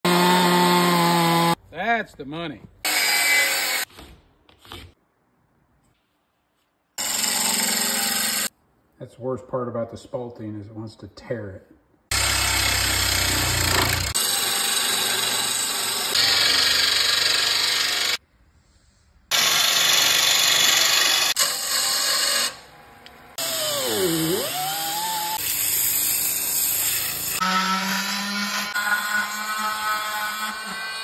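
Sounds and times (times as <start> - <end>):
drill-driven sanding disc on wood: 7.0 - 8.5, 12.1 - 18.2, 23.4 - 31.0
oscillating multi-tool buzzing: 12.1 - 18.2, 23.4 - 30.9
gouge shaving wood on lathe: 13.0 - 15.0.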